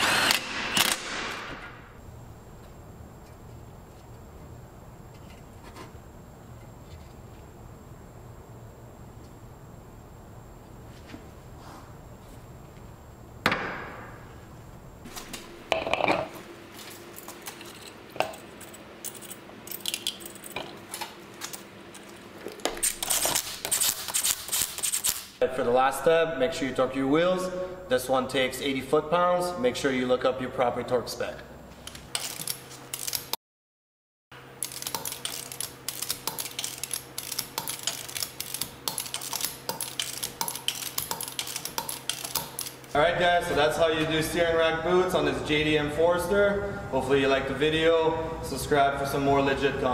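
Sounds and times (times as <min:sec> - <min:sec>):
torque wrench ratchet clicking: 0:34.6 - 0:42.8.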